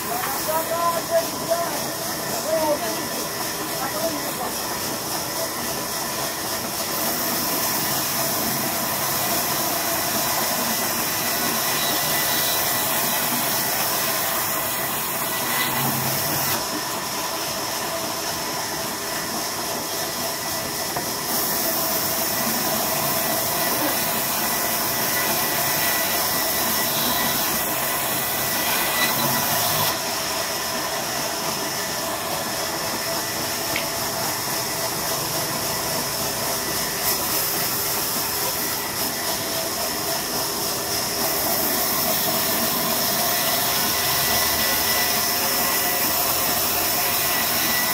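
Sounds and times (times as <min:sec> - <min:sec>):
band saw ripping through log: 0:07.1 - 0:16.7, 0:21.4 - 0:30.0.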